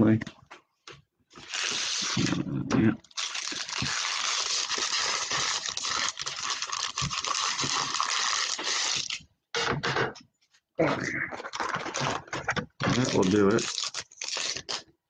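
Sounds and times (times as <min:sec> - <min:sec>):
foil wrappers crinkling: 0:01.3 - 0:02.4, 0:03.0 - 0:09.2, 0:11.4 - 0:14.9.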